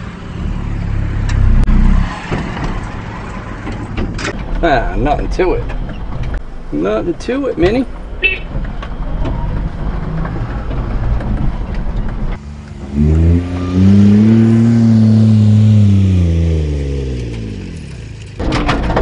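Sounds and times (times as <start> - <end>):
engine and road noise inside cab: 0.0 - 19.0
truck engine revving: 12.3 - 18.4.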